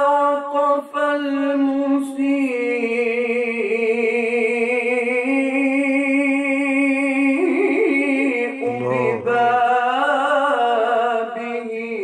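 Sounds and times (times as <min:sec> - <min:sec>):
man chanting solo: 0:08.6 - 0:09.6.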